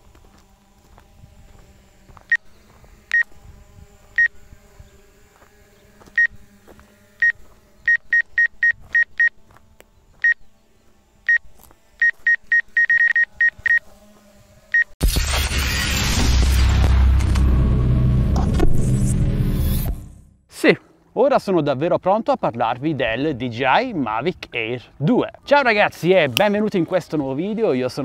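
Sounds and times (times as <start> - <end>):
short electronic beeps: 7.2 - 9.3, 12.0 - 13.8
loud boom with low rumble: 15.0 - 20.3.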